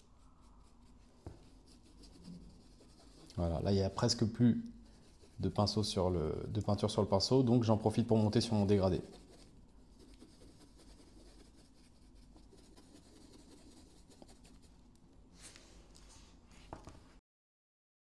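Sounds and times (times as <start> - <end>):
paintbrush rubbing on leather: 0.0 - 4.2, 4.9 - 6.0, 8.4 - 14.7.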